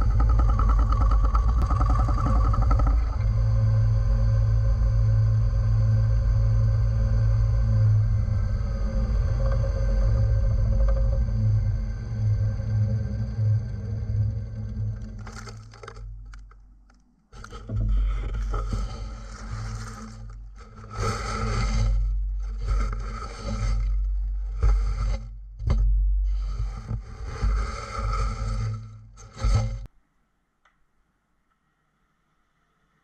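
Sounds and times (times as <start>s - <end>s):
hollowing tool scraping wood: 0.0s - 3.3s, 17.4s - 29.9s
wood lathe low rumble: 0.0s - 16.6s, 17.4s - 29.9s.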